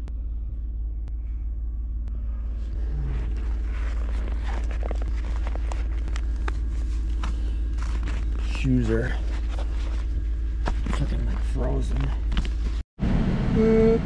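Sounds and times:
pickup engine idling: 0:00.2 - 0:12.8.

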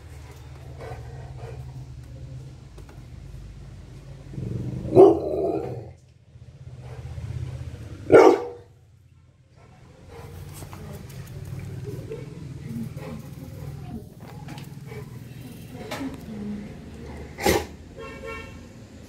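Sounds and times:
dog barking: 0:04.9 - 0:05.8, 0:08.0 - 0:08.7.

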